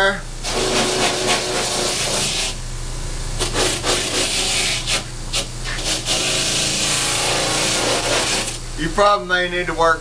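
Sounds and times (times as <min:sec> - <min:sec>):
wire brush scratching suede: 0:03.4 - 0:08.6.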